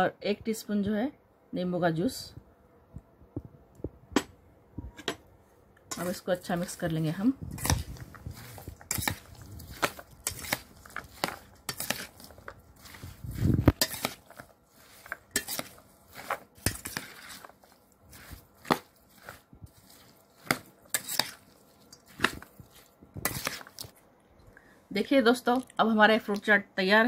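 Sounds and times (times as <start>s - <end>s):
metal spoon clinking in steel bowl: 5.9s - 6.2s, 13.8s - 14.4s, 15.3s - 15.8s.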